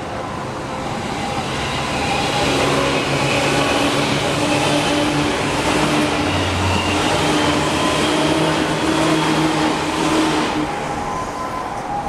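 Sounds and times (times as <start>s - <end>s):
electric train rumbling past: 0.0s - 12.0s
crossing warning bell ringing: 9.6s - 12.0s.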